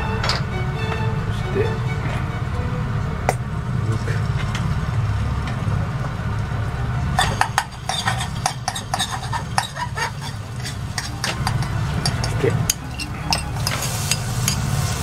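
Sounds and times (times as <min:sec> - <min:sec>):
steady low hum: 0:00.0 - 0:15.0
utensil scraping saucepan: 0:07.2 - 0:15.0.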